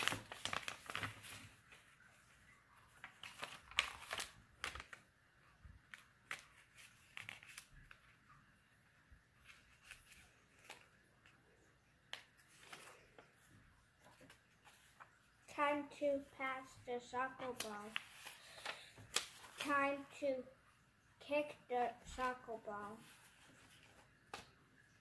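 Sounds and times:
paper pages rustling: 0:00.0 - 0:05.1, 0:05.7 - 0:08.4, 0:09.4 - 0:16.3, 0:17.0 - 0:20.0, 0:22.0 - 0:25.0
crisp page flicks: 0:17.6 - 0:19.7.

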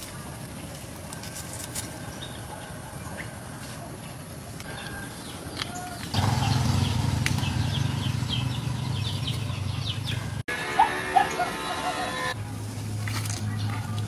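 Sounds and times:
small birds chirping: 0:00.0 - 0:10.4.

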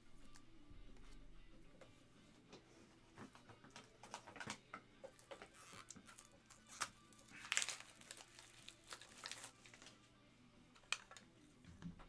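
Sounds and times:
trading cards clicking and rustling: 0:03.2 - 0:10.0, 0:10.8 - 0:11.3.

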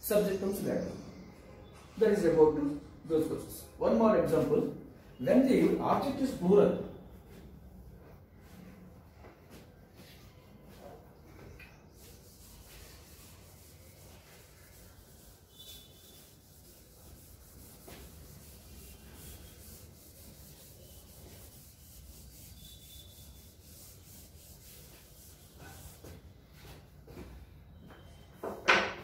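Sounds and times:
eraser rubbing on chalkboard: 0:11.9 - 0:26.7.

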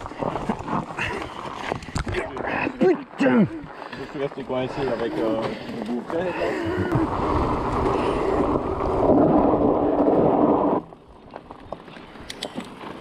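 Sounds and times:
tyre rumble over rocky trail: 0:00.0 - 0:13.0
faint clicks: 0:11.3 - 0:12.8.

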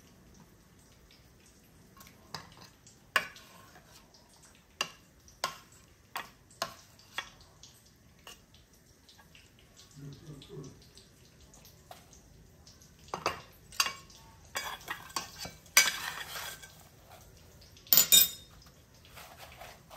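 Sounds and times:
metal spoon clinking on enamel dishes: 0:17.9 - 0:18.6.

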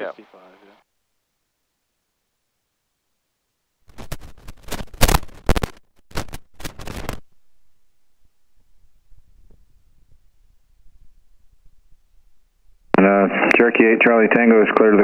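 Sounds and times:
loud irregular radio crackling: 0:03.9 - 0:07.2, 0:12.9 - 0:15.0.

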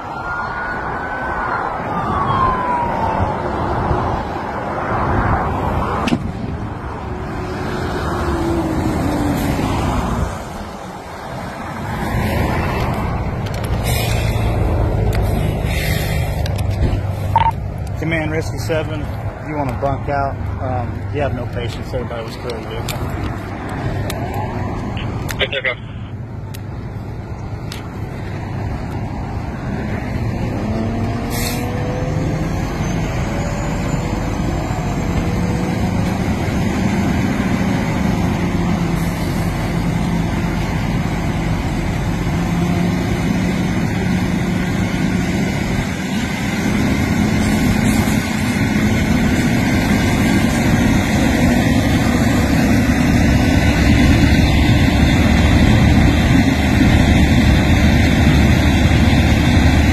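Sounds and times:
fire engine humming: 0:00.0 - 0:59.9
rushing noise: 0:28.0 - 0:59.9.

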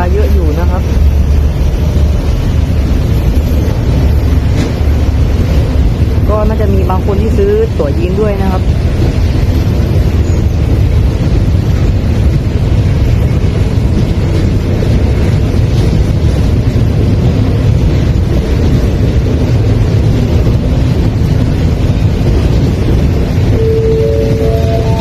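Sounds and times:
train coaches rumbling on track: 0:00.0 - 0:25.0
steady high tones: 0:23.6 - 0:25.0.

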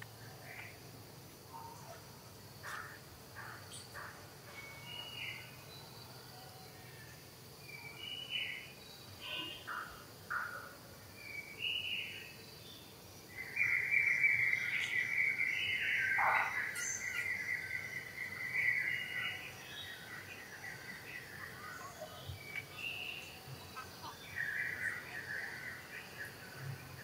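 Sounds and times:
high insect whine: 0:00.0 - 0:27.0
steady insect drone: 0:00.0 - 0:27.0
bird chirps: 0:02.6 - 0:06.8, 0:13.4 - 0:27.0.

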